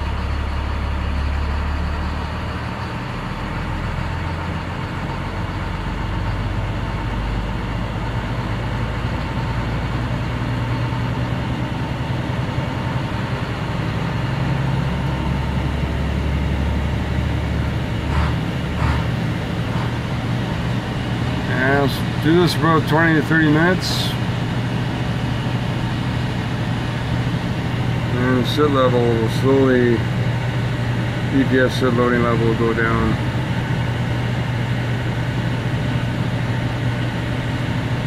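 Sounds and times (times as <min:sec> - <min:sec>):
diesel engine idling: 0:00.0 - 0:38.0.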